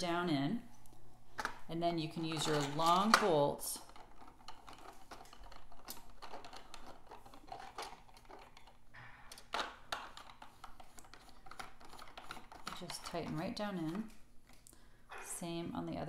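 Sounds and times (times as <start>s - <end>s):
plastic and metal parts clicking: 2.3s - 14.6s.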